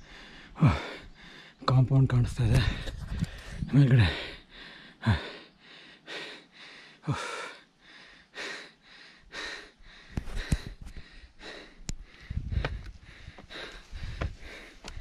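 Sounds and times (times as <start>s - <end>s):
man breathing hard: 0.0s - 1.6s, 2.6s - 15.0s
low thumps: 12.3s - 14.5s.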